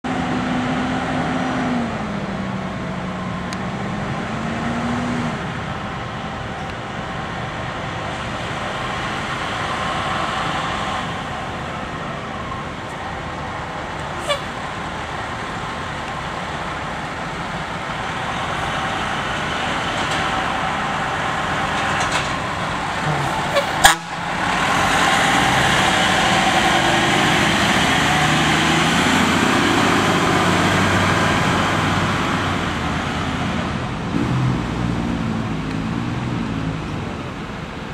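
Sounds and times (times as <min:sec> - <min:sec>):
truck driving past: 0:00.0 - 0:37.9
diesel engine idling: 0:05.5 - 0:34.1.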